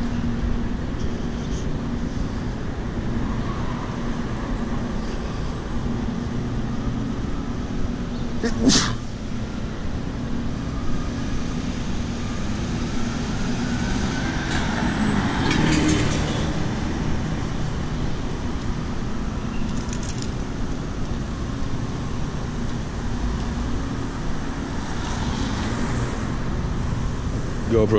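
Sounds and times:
street traffic noise: 0.0s - 27.9s.

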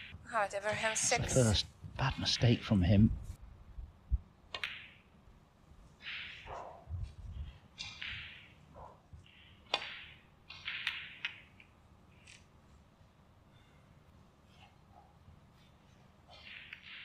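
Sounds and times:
snooker balls clicking: 4.5s - 5.1s, 7.8s - 8.6s, 9.2s - 12.5s, 16.4s - 17.0s.

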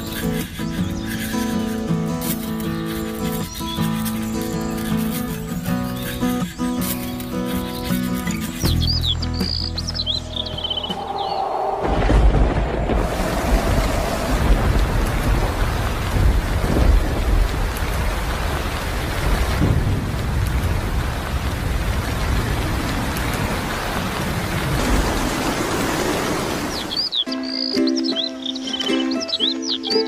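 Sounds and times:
rain hissing: 0.0s - 27.2s
thunder rumbling: 10.2s - 27.1s.

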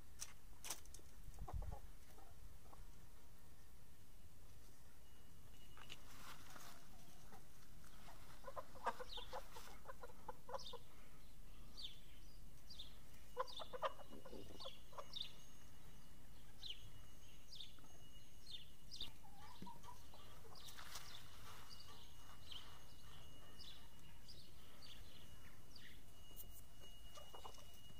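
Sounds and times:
hens clucking: 1.3s - 2.9s, 7.0s - 10.9s, 13.3s - 15.3s, 19.1s - 23.2s, 27.1s - 27.8s.

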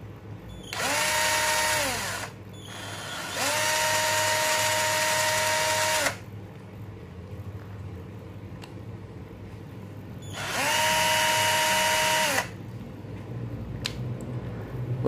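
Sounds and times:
cordless drill motor whining: 0.6s - 6.2s, 10.2s - 12.6s.

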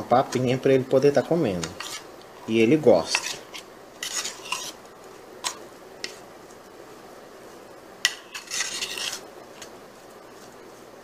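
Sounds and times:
spoon scraping plate: 1.5s - 2.1s, 3.0s - 4.8s, 8.0s - 9.7s.

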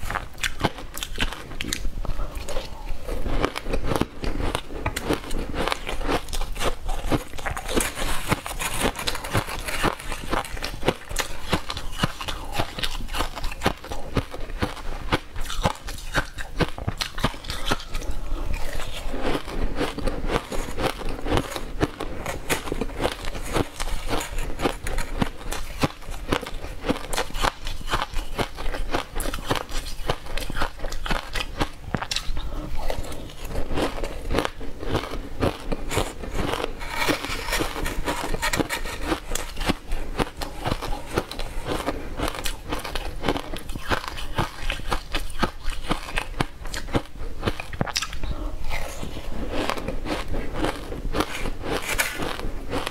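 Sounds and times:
crunching and chewing shaved ice: 0.0s - 52.9s.

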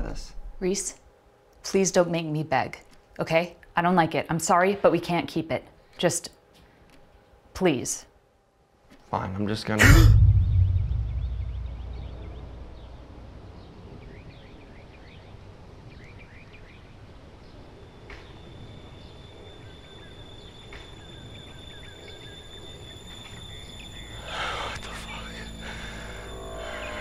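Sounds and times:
deep boom: 9.8s - 13.0s
low rumble: 9.8s - 13.4s
small birds chirping: 10.7s - 27.0s
thin high tone: 23.3s - 27.0s.

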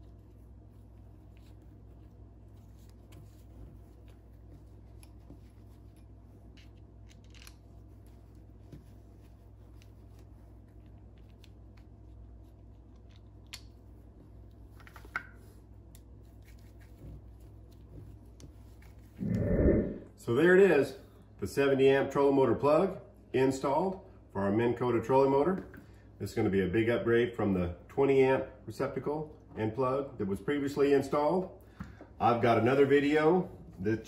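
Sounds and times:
low steady hum: 0.0s - 34.0s.

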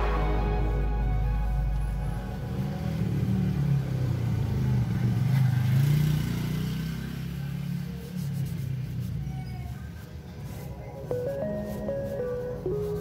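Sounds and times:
vehicle engine passing by: 0.0s - 8.9s.

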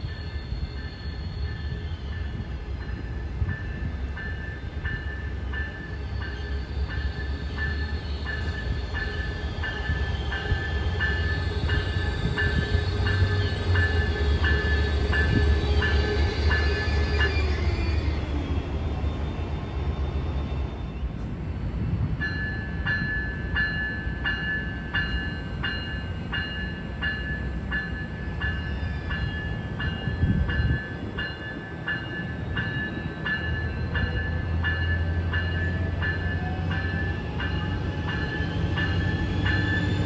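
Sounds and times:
crossing warning bell ringing: 0.0s - 18.6s, 22.1s - 40.0s
train whine falling in pitch: 0.0s - 21.4s.

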